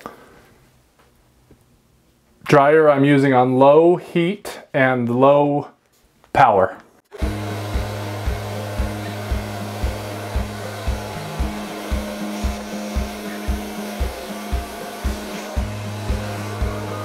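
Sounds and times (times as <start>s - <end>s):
hair dryer blowing: 7.1s - 17.0s
background music with bass beat: 7.2s - 17.0s.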